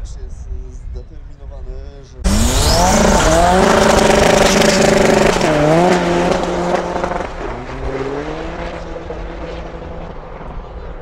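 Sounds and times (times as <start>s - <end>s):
cars accelerating hard: 2.2s - 11.0s.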